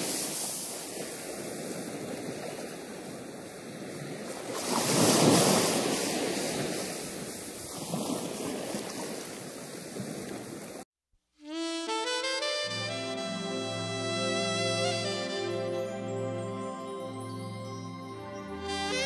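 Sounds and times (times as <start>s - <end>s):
surf washing around rocks: 0.0s - 10.8s.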